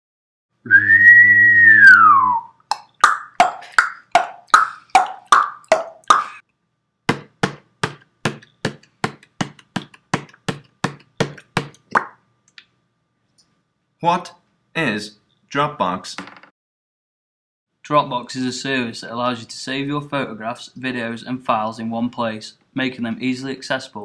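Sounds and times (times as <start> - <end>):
whistle-like sliding tone: 0.7 - 2.6.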